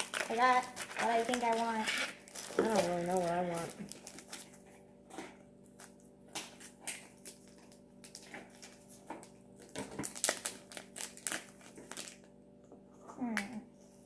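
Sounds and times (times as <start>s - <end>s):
plastic bag crinkling: 0.0s - 4.7s, 6.6s - 12.3s.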